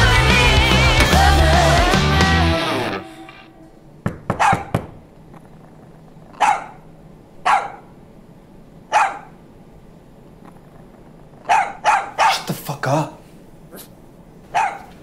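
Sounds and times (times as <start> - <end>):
sharp knocks: 4.0 - 5.0
dog barking: 4.3 - 4.7, 6.4 - 6.8, 7.4 - 8.0, 8.9 - 9.4, 11.4 - 12.5, 14.5 - 15.0.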